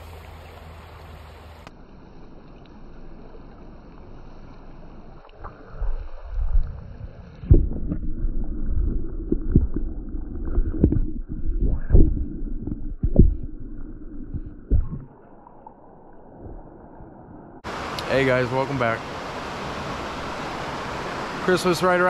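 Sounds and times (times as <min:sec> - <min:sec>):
creek water running: 0:00.0 - 0:16.6, 0:17.6 - 0:22.0
muffled low rumble with knocks: 0:05.8 - 0:15.2.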